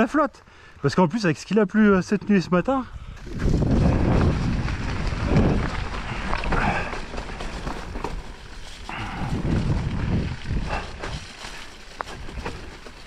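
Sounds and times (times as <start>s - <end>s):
bike tyres and rattling: 2.3s - 13.0s.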